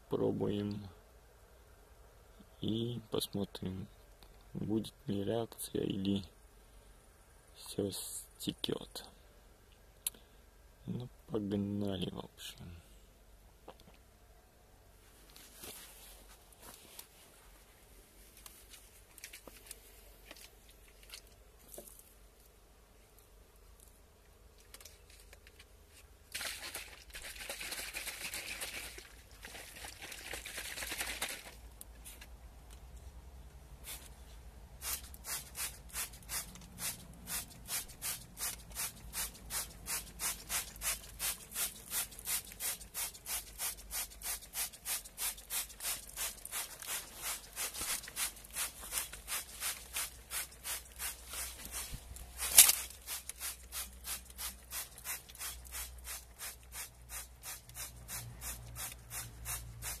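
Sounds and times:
spray bottle spritzing: 34.8 - 60.0.

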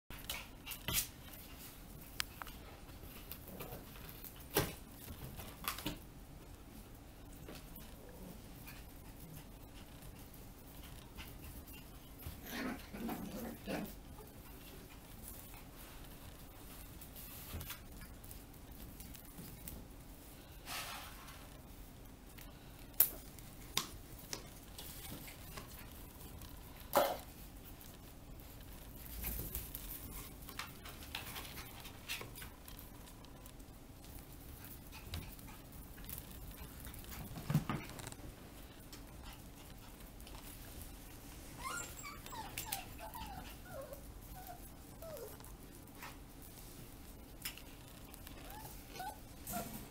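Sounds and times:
paws clicking on tile floor: 0.1 - 20.6, 21.5 - 49.9
puppy whimpers: 41.6 - 45.4, 48.4 - 49.9.

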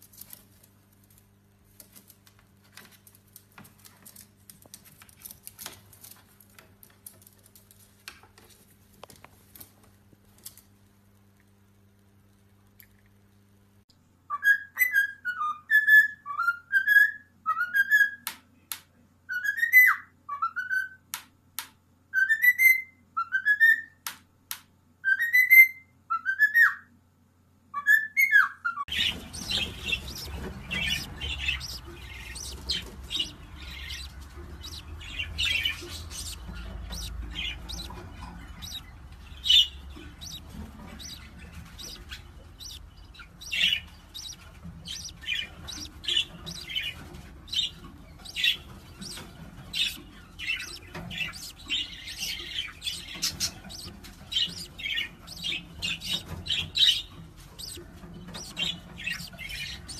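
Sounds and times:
parrot chirping: 27.8 - 59.9
faint low rumble: 28.9 - 59.9.

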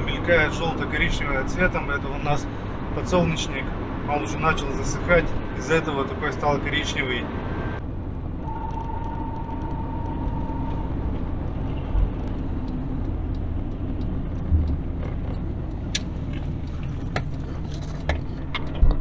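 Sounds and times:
engine and road rumble: 0.0 - 19.0.

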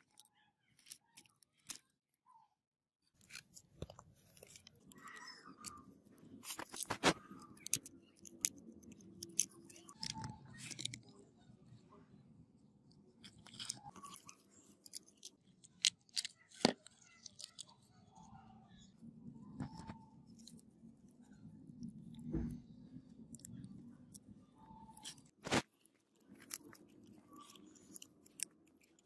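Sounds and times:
plastic and metal parts clicking: 0.0 - 1.9, 3.2 - 11.1, 12.9 - 17.9, 24.9 - 29.0.

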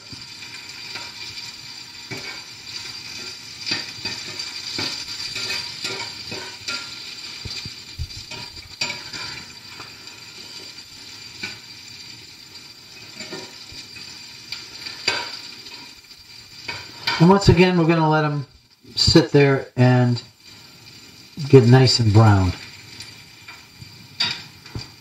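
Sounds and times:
metal spatula scraping a skillet: 0.0 - 17.3, 22.6 - 25.0
frying sizzle: 0.0 - 25.0.

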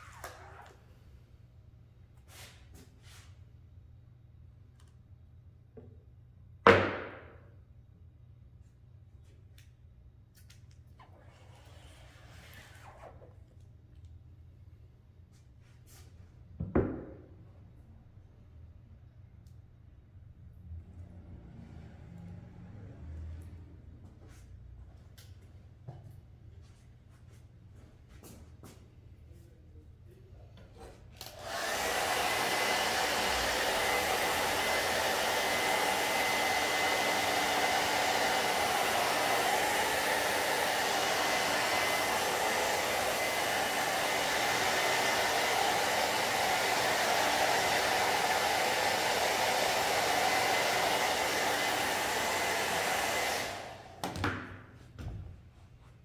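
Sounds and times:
hair dryer blowing with whine: 30.8 - 54.3.

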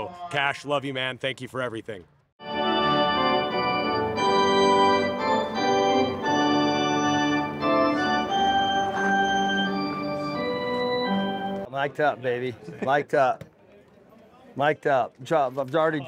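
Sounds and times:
organ playing slow chords: 2.4 - 11.7.

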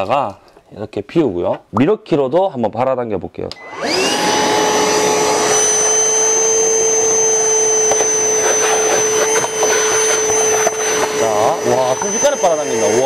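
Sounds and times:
wet vacuum motor whining: 3.6 - 13.0.

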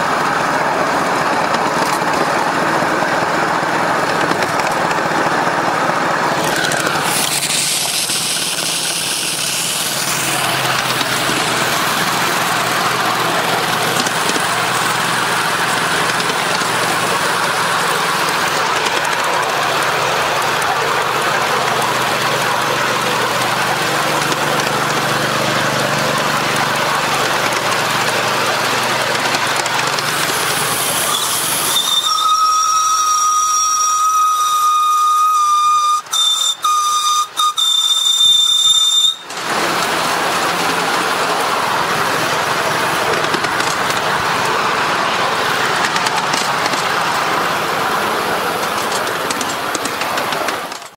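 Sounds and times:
steam locomotive running: 0.0 - 50.9
steam whistle: 30.4 - 39.4.

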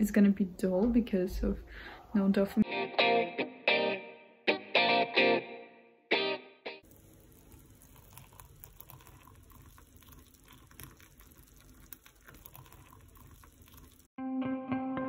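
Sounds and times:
guitar phrase: 2.6 - 6.8
electric kettle boiling: 6.8 - 14.1
water poured into a mug: 6.8 - 14.2.

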